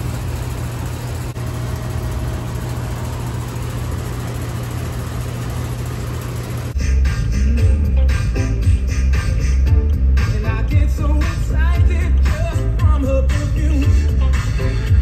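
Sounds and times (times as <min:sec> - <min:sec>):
low engine-like drone: 0:00.0 - 0:15.0
background music with beat: 0:06.8 - 0:15.0.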